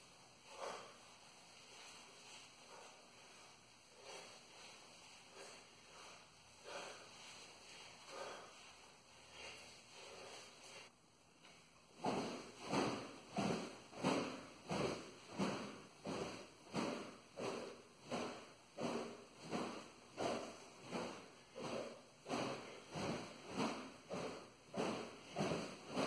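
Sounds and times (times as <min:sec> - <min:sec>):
sword swishing through air: 0:12.0 - 0:26.0.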